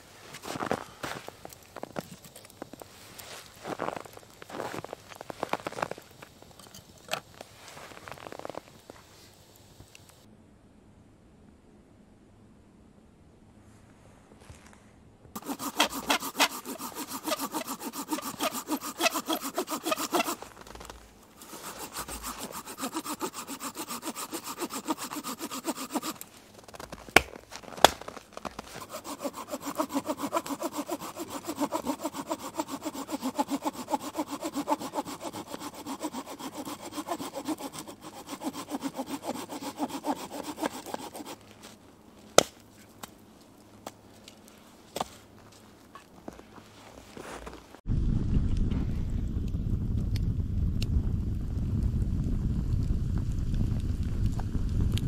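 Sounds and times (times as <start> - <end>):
hand saw cutting log: 15.4 - 26.3, 27.2 - 41.8.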